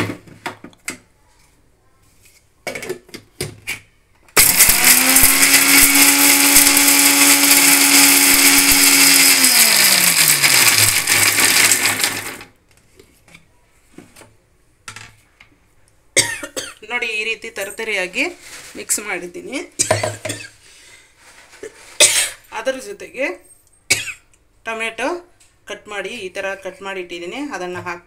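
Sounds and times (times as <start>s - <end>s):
mixer grinder motor grinding: 4.4s - 12.5s.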